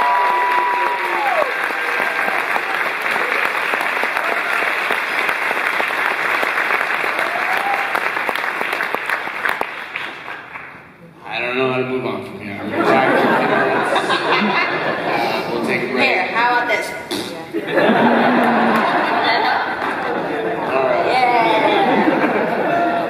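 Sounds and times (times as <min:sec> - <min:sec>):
audience applauding: 0:00.0 - 0:10.9, 0:17.8 - 0:23.0.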